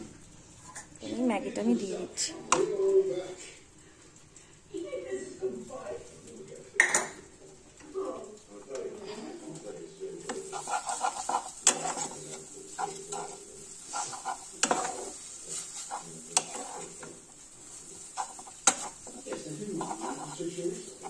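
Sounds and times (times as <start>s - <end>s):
light sizzle: 0.0s - 21.0s
spatula scraping frying pan: 10.2s - 21.0s.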